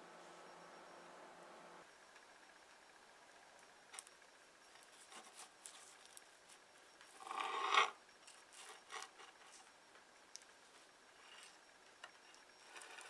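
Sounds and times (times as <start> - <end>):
small ticks and rustles: 3.6 - 7.4, 8.1 - 13.0.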